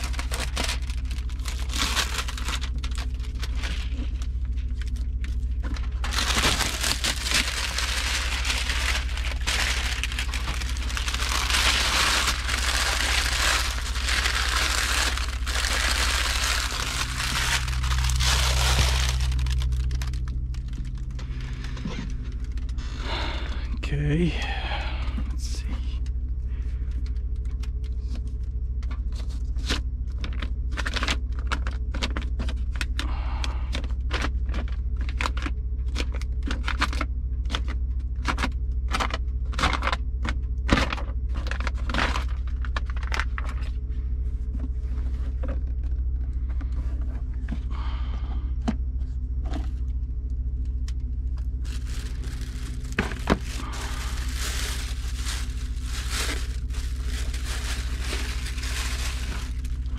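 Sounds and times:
plastic wrapping rustling: 0.0s - 22.8s, 51.5s - 59.9s
low hum: 0.0s - 59.9s.

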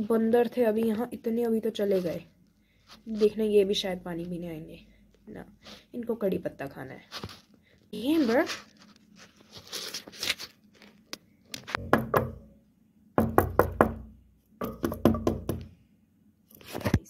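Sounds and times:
rapid sharp knocks: 11.8s - 12.5s, 13.2s - 15.7s.

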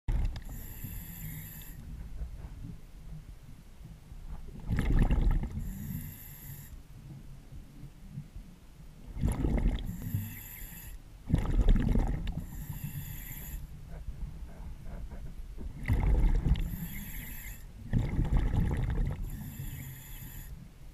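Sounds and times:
regulator hissing inhale: 0.4s - 1.8s, 5.6s - 6.8s, 9.9s - 11.0s, 12.4s - 14.7s, 16.6s - 17.7s, 19.2s - 20.7s
exhaled bubbles rushing: 4.6s - 5.6s, 9.1s - 9.9s, 11.3s - 12.4s, 15.8s - 16.7s, 17.9s - 19.2s.

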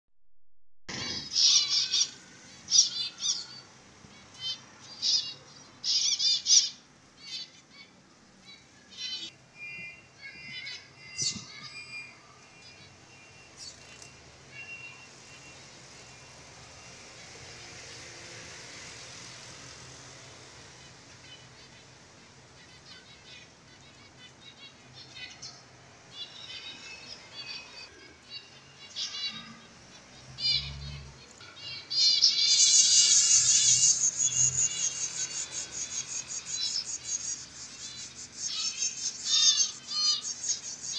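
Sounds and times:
finches chattering: 22.6s - 40.9s.

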